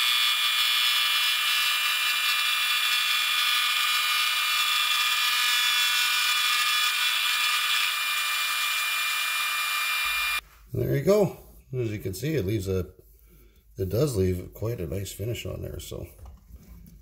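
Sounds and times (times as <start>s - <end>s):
metal lathe high whine: 0.0s - 10.4s.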